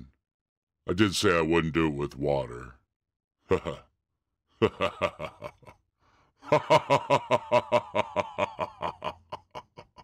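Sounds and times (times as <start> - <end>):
man laughing: 3.4 - 3.9, 4.5 - 5.8, 6.4 - 10.0.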